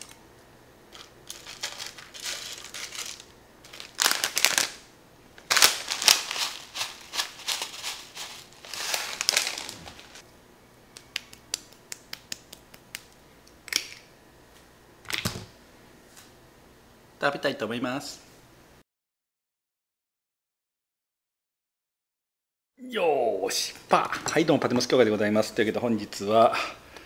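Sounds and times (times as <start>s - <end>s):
tempura bits rustling into bowl: 0.9s - 4.8s, 5.4s - 10.2s.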